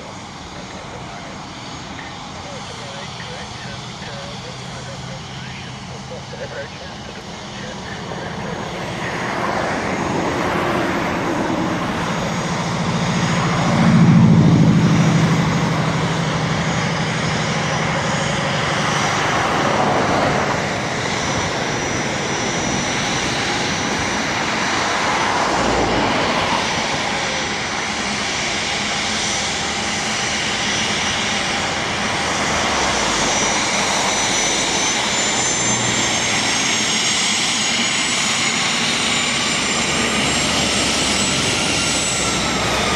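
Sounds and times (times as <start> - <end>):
jet taxiing: 0.0 - 42.9.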